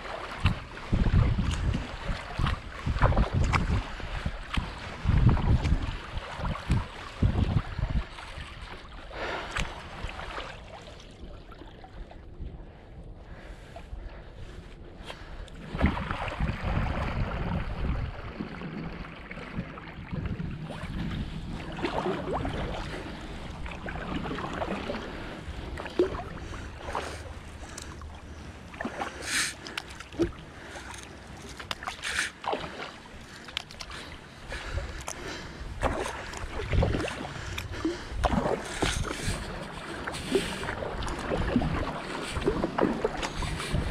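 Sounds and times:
kayak paddle splashing in water: 0:00.0 - 0:12.1, 0:15.5 - 0:43.9.

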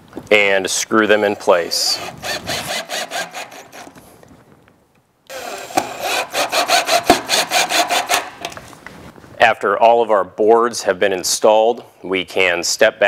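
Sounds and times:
cordless drill driving screws: 0:01.3 - 0:04.0, 0:05.3 - 0:08.3.

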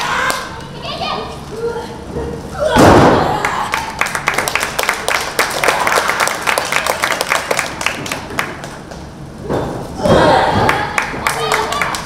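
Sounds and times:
crowd clapping: 0:03.4 - 0:09.0, 0:10.6 - 0:12.0.

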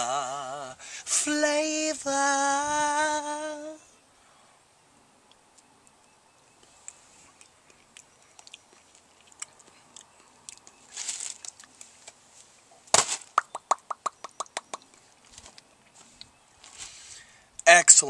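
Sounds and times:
hissing breath: 0:00.8 - 0:01.1, 0:16.8 - 0:17.6
lip smacks and mouth clicks: 0:06.6 - 0:12.0, 0:13.4 - 0:15.0
sharp snap: 0:12.9 - 0:14.8
quick run of clicks: 0:13.0 - 0:15.7.

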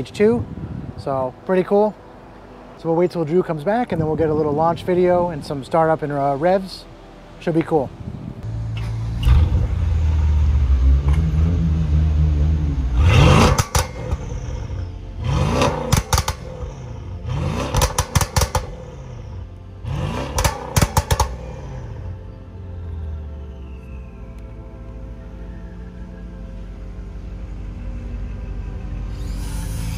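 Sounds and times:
car engine starting and idling: 0:00.0 - 0:29.9
engine revving: 0:08.0 - 0:24.2, 0:25.9 - 0:29.9
exhaust pops and crackles: 0:12.9 - 0:16.9, 0:17.5 - 0:19.0, 0:20.1 - 0:21.6.

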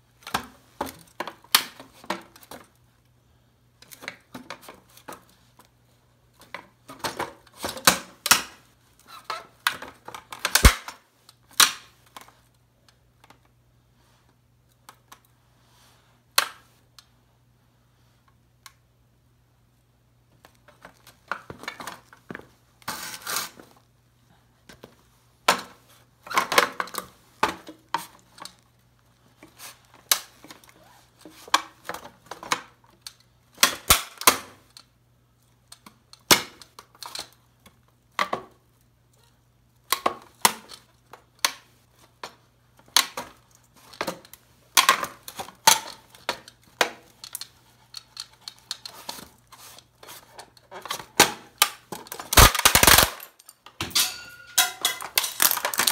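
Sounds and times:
wooden cabinet cracking and crunching: 0:50.8 - 0:53.9, 0:54.6 - 0:55.9.

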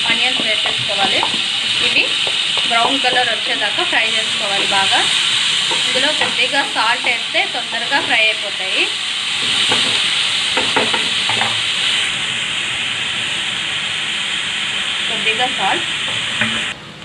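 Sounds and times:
spatula scraping pan: 0:00.0 - 0:08.5
onions sizzling in hot oil: 0:00.0 - 0:16.8.

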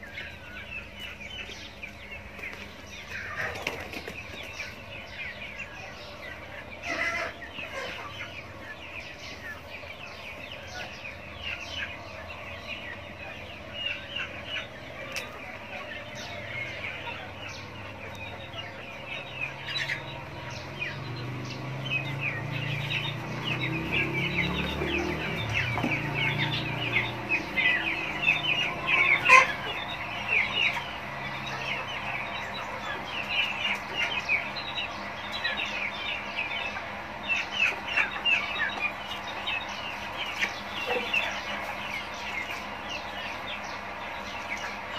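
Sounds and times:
chickens clucking and peeping: 0:00.0 - 0:44.9
chicken squawk: 0:05.4 - 0:21.0, 0:23.8 - 0:43.4.

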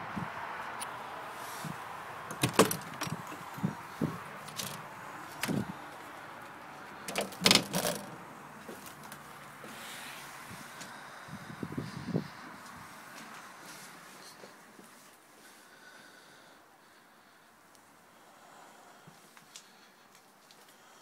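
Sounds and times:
door latch clicking and rattling: 0:02.3 - 0:03.4, 0:04.5 - 0:04.8, 0:07.1 - 0:08.2.

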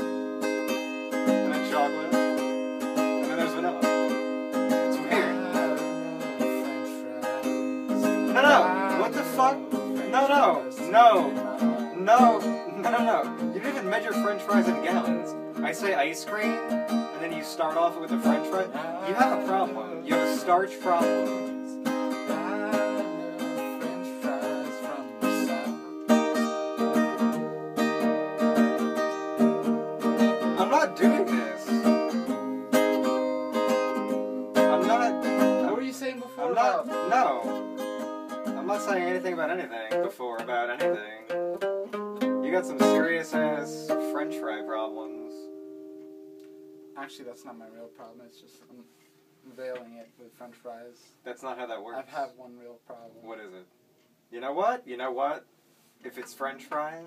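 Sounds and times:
acoustic guitar strumming: 0:00.0 - 0:49.6
man's voice: 0:01.3 - 0:02.4, 0:03.0 - 0:28.0, 0:30.4 - 0:32.9, 0:34.5 - 0:37.6, 0:38.5 - 0:41.3, 0:42.4 - 0:45.5
man singing: 0:03.0 - 0:28.2, 0:30.4 - 0:33.2, 0:34.1 - 0:37.6, 0:42.5 - 0:44.0.

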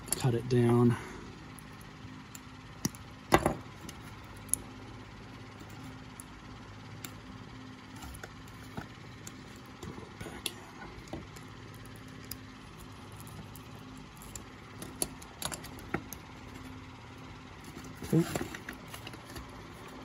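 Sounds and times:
steady low hum: 0:00.0 - 0:20.0
wires and plastic block clicking: 0:03.7 - 0:04.7, 0:05.6 - 0:07.2, 0:07.9 - 0:16.7.

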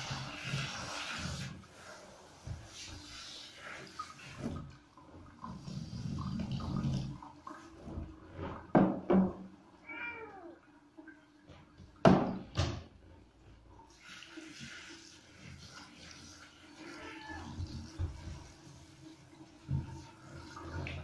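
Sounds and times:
shower spraying hiss: 0:00.0 - 0:04.5
cat meowing: 0:09.8 - 0:10.6, 0:16.8 - 0:17.7.

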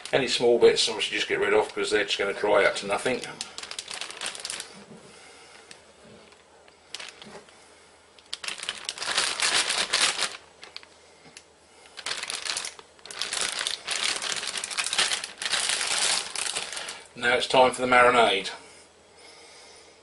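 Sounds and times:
plastic bag crinkling: 0:00.0 - 0:05.0, 0:05.6 - 0:07.5, 0:08.2 - 0:11.0, 0:11.8 - 0:17.1.

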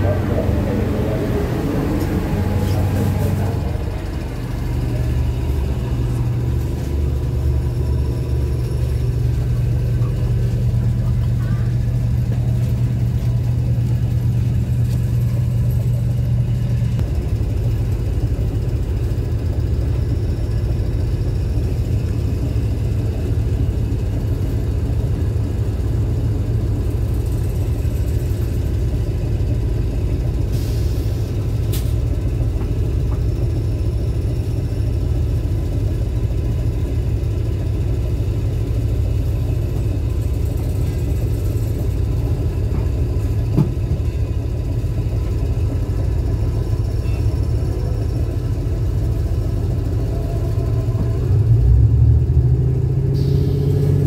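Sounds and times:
deep drone: 0:00.0 - 0:31.4
train machinery rumble and hum: 0:00.0 - 0:54.0.

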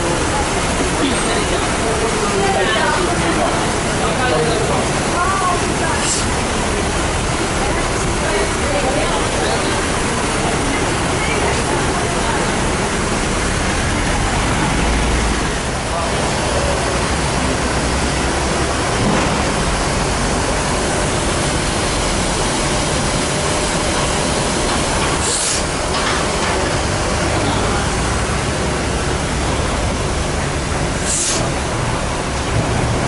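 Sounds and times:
rushing roar of airport apron: 0:00.0 - 0:33.0
brief high hiss: 0:25.2 - 0:25.7, 0:31.0 - 0:31.5.

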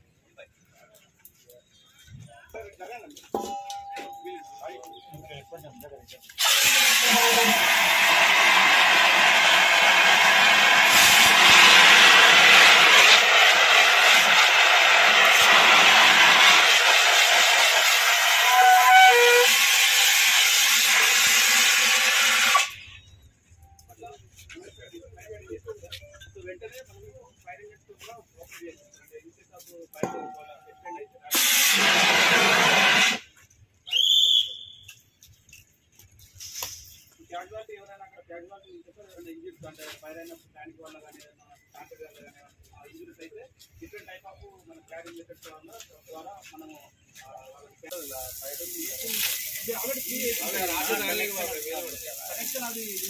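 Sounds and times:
whistle blast: 0:03.4 - 0:08.4, 0:09.4 - 0:23.2, 0:30.0 - 0:33.2, 0:33.8 - 0:35.1
fire extinguishers hissing: 0:06.1 - 0:23.0, 0:30.2 - 0:33.3, 0:47.9 - 0:53.0.

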